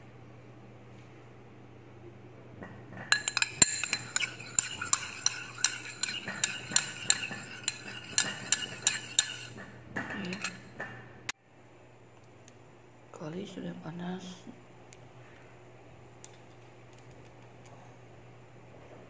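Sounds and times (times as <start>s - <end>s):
spoon clinking against bowl: 3.1s - 9.6s, 10.2s - 10.6s
spoon stirring thick sauce: 3.2s - 9.6s.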